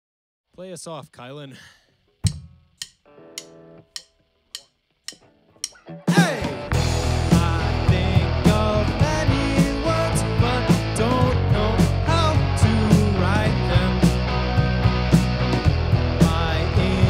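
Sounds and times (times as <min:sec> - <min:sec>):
drum kit beat: 0:02.2 - 0:17.0
electric guitars: 0:03.1 - 0:17.0
lead vocal singing: 0:06.1 - 0:14.4, 0:16.1 - 0:17.0
electric bass: 0:06.2 - 0:17.0.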